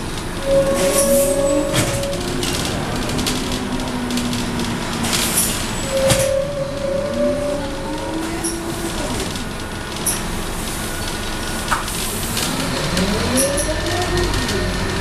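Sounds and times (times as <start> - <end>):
bus body rattles: 0.0 - 6.8
bus diesel engine running: 0.0 - 15.0.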